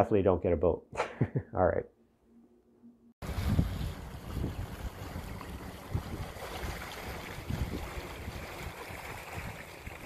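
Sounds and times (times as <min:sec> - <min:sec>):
water rushing in boat wake: 0:03.2 - 0:10.0
wind buffeting microphone: 0:03.2 - 0:10.0.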